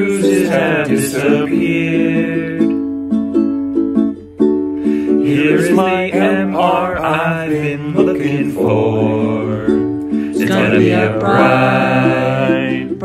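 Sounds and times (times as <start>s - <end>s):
several voices singing together: 0.0s - 2.8s, 5.2s - 13.0s
plucked-string accompaniment: 0.0s - 13.0s.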